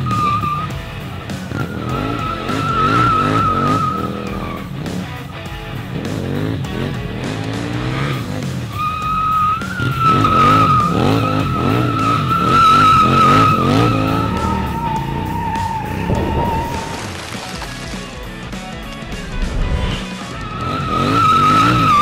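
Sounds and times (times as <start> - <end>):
tyre squealing: 0.0 - 0.9, 1.5 - 5.2, 8.7 - 17.5, 19.6 - 22.0
motorcycle engine revving: 0.0 - 22.0.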